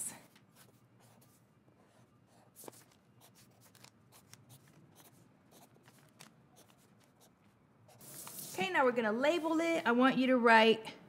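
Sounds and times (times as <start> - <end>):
marker scratching on paper: 0.5 - 8.6.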